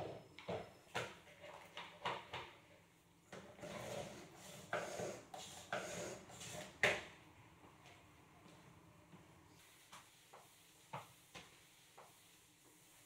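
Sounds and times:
mop rasping through bucket wringer: 3.5 - 6.8.

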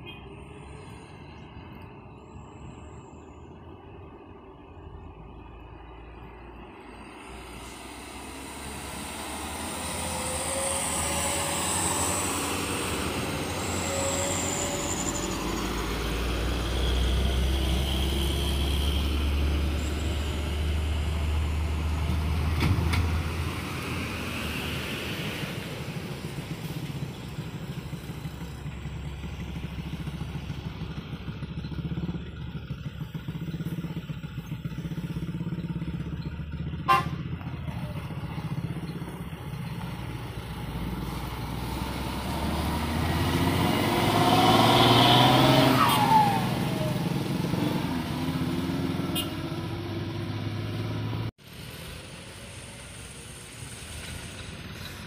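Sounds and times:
bus passing: 0.0 - 55.0
road traffic engines: 0.0 - 55.0
truck engine running: 3.5 - 45.7.

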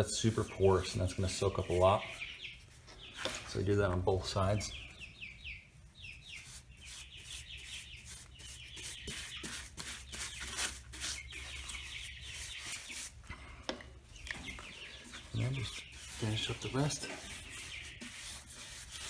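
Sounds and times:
brush scrubbing wood: 0.0 - 2.3, 6.2 - 13.2, 14.9 - 19.0.

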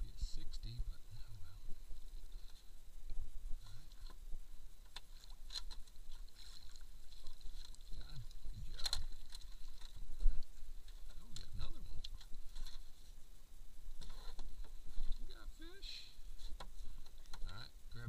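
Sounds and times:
water splashing: 1.8 - 13.2.

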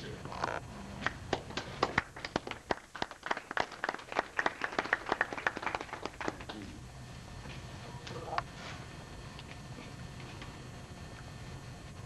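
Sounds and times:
small audience applauding: 1.0 - 6.8.

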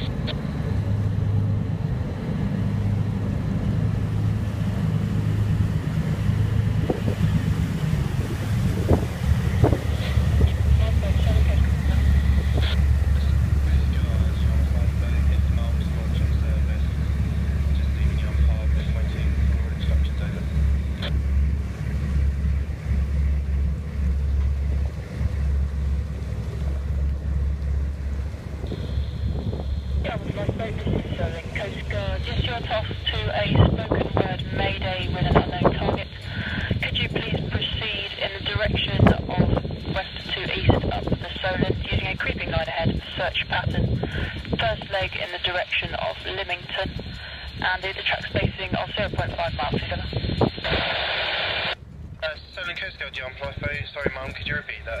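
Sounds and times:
low engine rumble: 0.0 - 55.0
sea wash: 0.0 - 55.0
wind noise on microphone: 6.6 - 14.0, 28.3 - 55.0.

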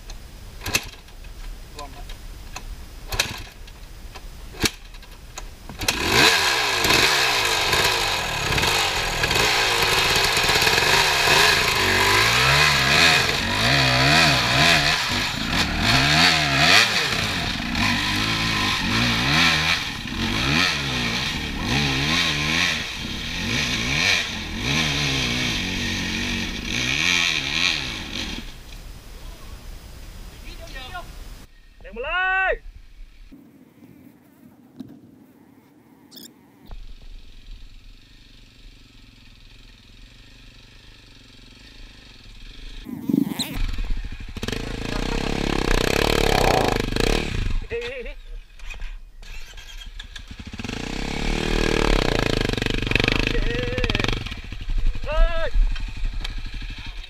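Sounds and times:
dirt bike engine revving: 5.6 - 28.7, 36.7 - 57.0.

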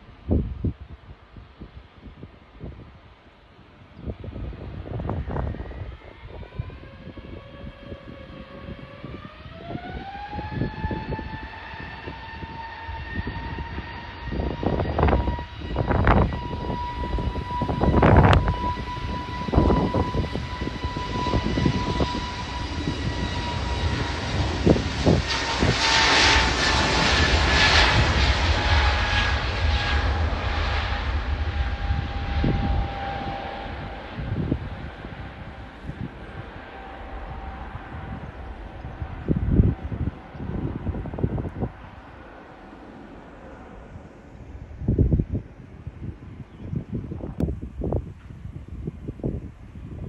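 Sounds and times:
jet engine roar: 0.0 - 50.0
jet engine whine: 0.0 - 50.0
wind thumps on microphone: 14.4 - 36.6, 44.0 - 50.0.

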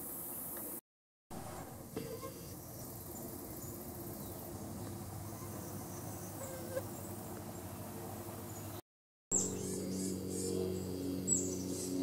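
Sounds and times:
insect drone: 1.5 - 7.8, 9.4 - 12.0.

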